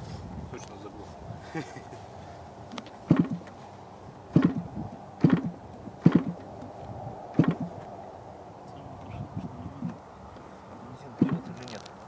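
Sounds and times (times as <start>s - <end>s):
propeller flip knocks: 11.2s - 11.9s.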